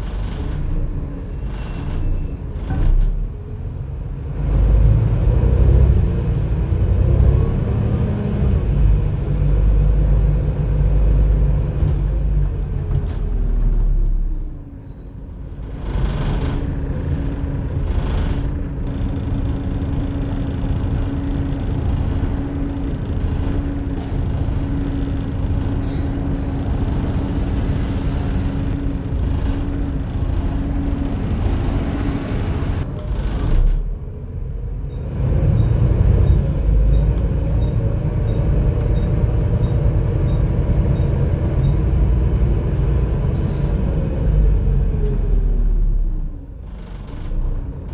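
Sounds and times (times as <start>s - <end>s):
bus engine rumble: 0.0s - 47.9s.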